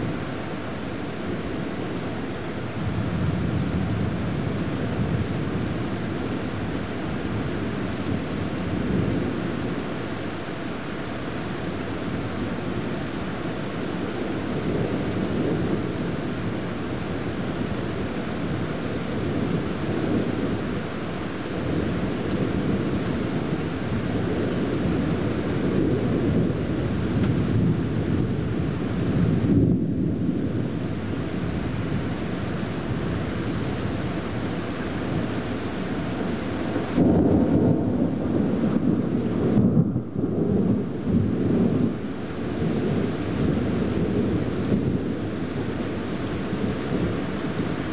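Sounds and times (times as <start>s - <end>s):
heavy rain: 0.0s - 47.9s
thunder rumble: 11.7s - 47.9s.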